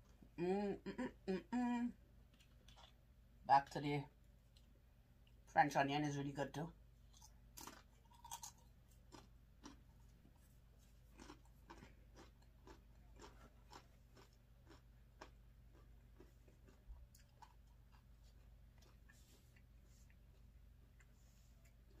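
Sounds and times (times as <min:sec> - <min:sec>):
chip being chewed: 0:02.3 - 0:03.0, 0:07.1 - 0:10.2, 0:10.8 - 0:22.0.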